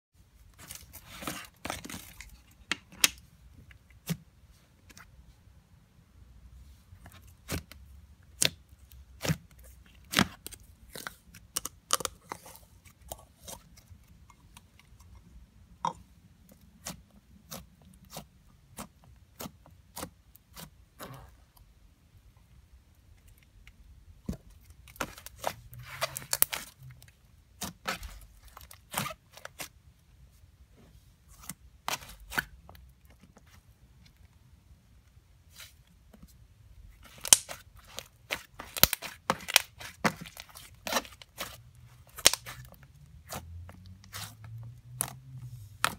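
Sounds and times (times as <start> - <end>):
slime crackling and popping: 37.0 - 43.4.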